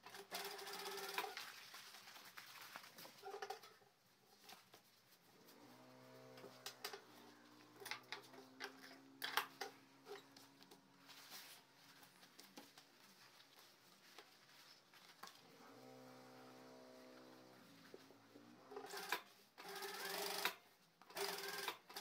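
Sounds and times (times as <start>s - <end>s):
cloth rustling: 0.8s - 7.7s, 9.9s - 16.1s.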